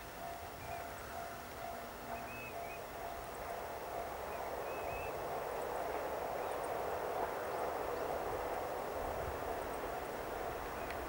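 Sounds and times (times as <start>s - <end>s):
bird chirping: 0.6s - 5.8s
diesel train rumbling: 1.8s - 11.0s.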